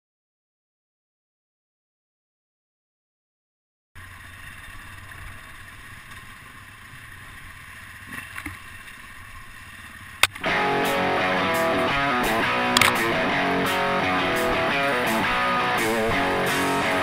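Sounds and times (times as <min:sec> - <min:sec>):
guitar music: 0:10.4 - 0:17.0
sharp click: 0:12.6 - 0:13.2.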